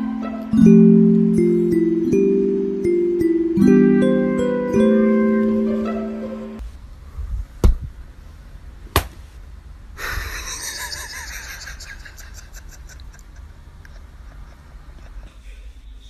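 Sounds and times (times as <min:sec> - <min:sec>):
mallet percussion music: 0:00.0 - 0:06.6.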